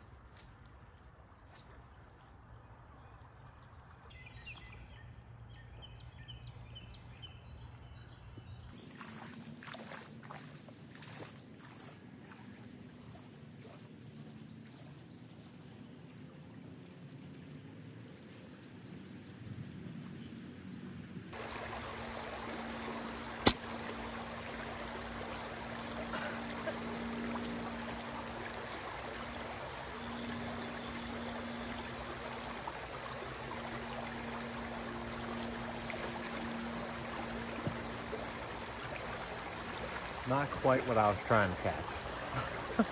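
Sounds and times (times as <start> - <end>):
stream water rippling: 0.0 - 5.9, 6.6 - 18.3, 21.3 - 42.9
sharp click: 23.4 - 23.6.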